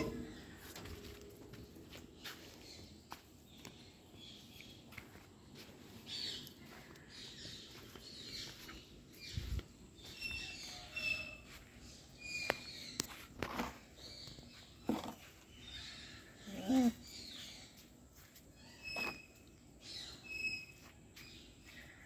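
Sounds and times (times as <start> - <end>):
footsteps scuffing on dirt: 0.0 - 15.4
small birds chirping: 0.0 - 22.0.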